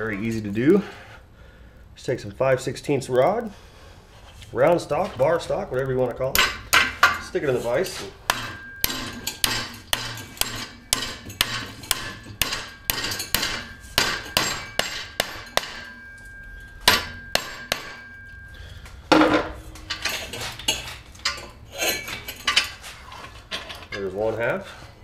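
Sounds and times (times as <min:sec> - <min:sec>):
hammer striking steel rod: 0:06.3 - 0:07.4, 0:08.2 - 0:18.5
metal clatter: 0:06.4 - 0:18.5, 0:19.1 - 0:24.2.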